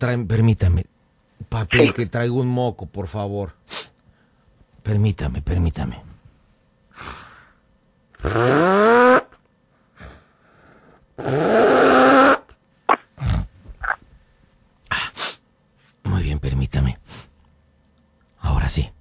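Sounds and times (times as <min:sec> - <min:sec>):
man blowing his nose: 0:08.2 - 0:09.3, 0:11.2 - 0:12.5.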